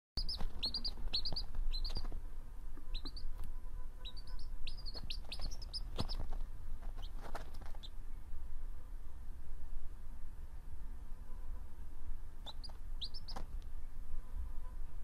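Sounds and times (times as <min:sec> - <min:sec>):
baby birds chirping: 0:00.2 - 0:02.2, 0:02.8 - 0:08.0, 0:12.4 - 0:13.5.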